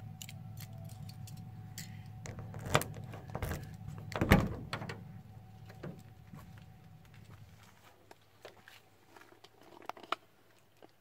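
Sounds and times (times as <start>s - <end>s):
door handle and latch rattling: 2.3s - 5.0s
door latch clunk: 2.3s - 5.0s.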